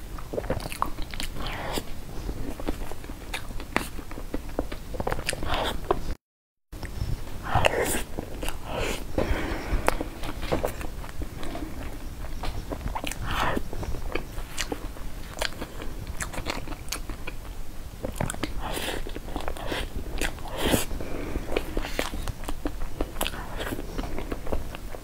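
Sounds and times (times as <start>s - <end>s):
wet chewing: 0.0s - 6.1s, 6.8s - 25.0s
mouth clicks and smacks: 0.2s - 1.9s, 2.5s - 6.1s, 9.8s - 20.9s, 21.5s - 25.0s.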